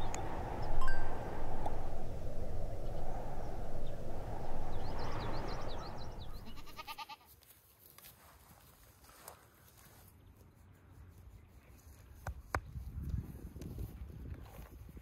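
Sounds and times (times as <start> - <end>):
low rushing noise: 0.0 - 6.8
goat bleating: 6.4 - 7.3.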